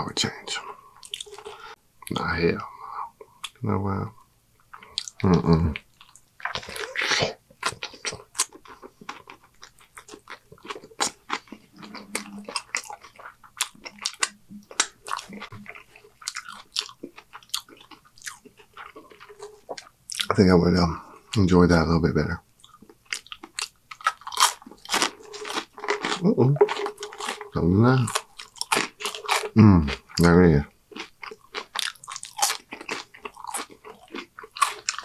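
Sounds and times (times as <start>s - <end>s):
man chewing food: 0.5s - 1.8s, 4.6s - 20.4s, 22.5s - 35.0s.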